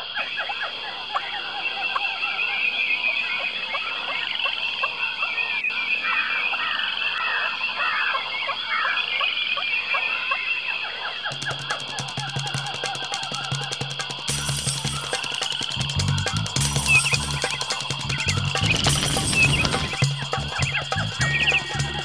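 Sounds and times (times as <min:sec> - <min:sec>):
birds chirping and calling: 0:00.0 - 0:22.0
music with quick drum beat: 0:11.3 - 0:22.0.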